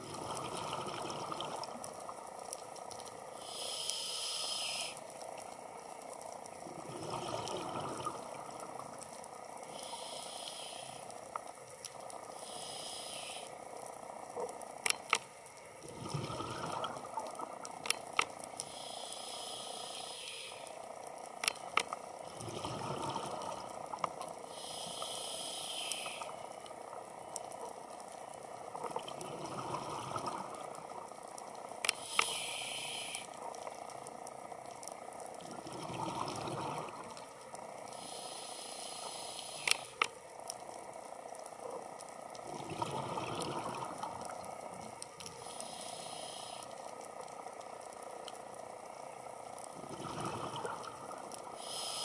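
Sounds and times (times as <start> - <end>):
bubbly rumble of exhaled air: 0.0 - 1.8, 6.6 - 8.6, 15.8 - 17.4, 22.2 - 24.0, 28.9 - 30.9, 35.4 - 37.2, 42.4 - 44.5, 49.7 - 51.3
diver breathing through regulator: 3.4 - 5.0, 9.7 - 11.1, 12.3 - 13.5, 18.6 - 20.8, 24.5 - 26.4, 31.9 - 33.4, 37.9 - 40.0, 45.4 - 46.8, 51.5 - 52.0
sharp clicks: 31.8 - 32.6, 39.4 - 40.2.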